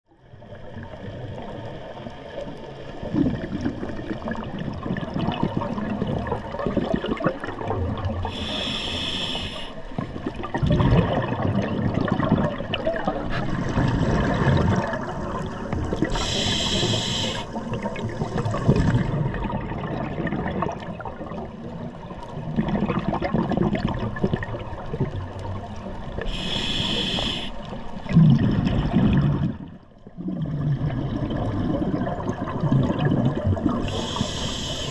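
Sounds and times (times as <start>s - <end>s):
bubbling exhaled air: 3.0s - 21.6s, 22.3s - 34.9s
regulator hissing inhalations: 8.2s - 9.9s, 16.1s - 17.6s, 26.2s - 27.7s, 33.8s - 34.9s.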